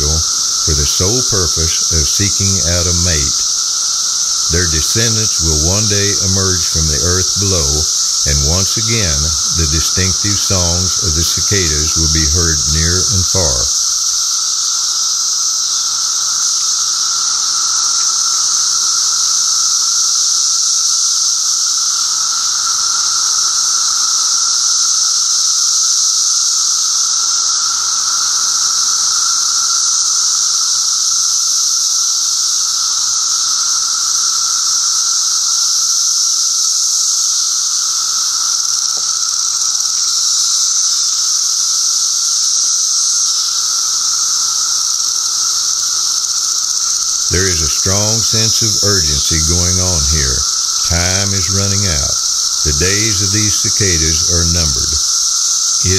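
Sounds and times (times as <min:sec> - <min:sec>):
cicadas high-pitched drone: 0:00.0 - 0:55.9
lower whine: 0:04.4 - 0:13.8.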